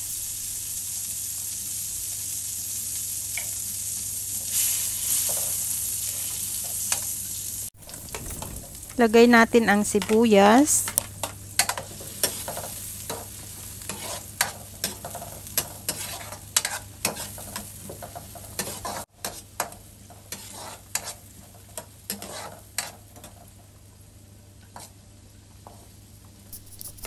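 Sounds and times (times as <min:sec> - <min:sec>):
onion sizzling in butter: 0:00.0 - 0:23.6, 0:26.4 - 0:27.0
metal spatula scraping pan: 0:13.9 - 0:17.7, 0:20.2 - 0:21.2, 0:22.1 - 0:22.9.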